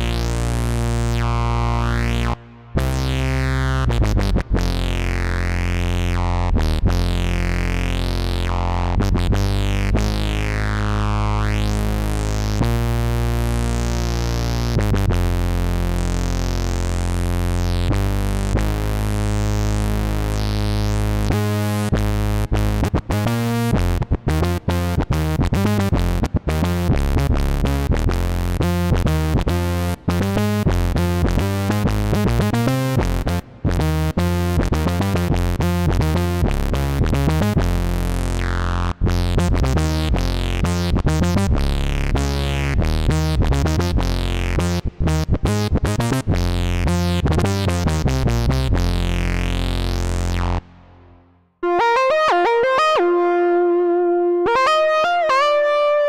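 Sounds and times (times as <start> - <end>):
synthesizer notes: 51.6 - 56.0.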